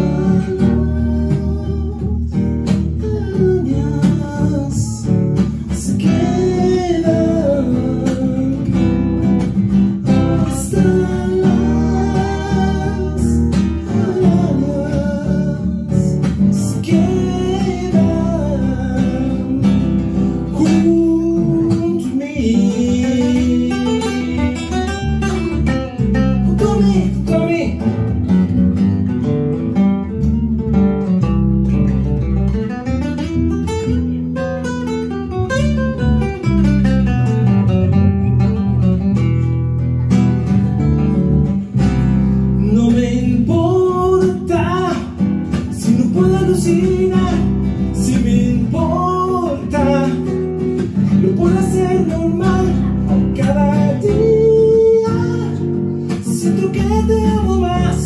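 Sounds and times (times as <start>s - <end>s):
man singing: 0.0s - 28.2s, 42.4s - 58.0s
electric bass: 0.0s - 58.0s
fingerpicked classical guitar: 0.0s - 58.0s.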